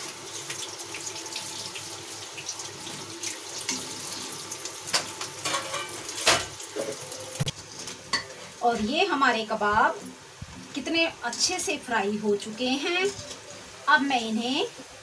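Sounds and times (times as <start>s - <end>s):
food deep-frying sizzle: 0.0s - 15.0s.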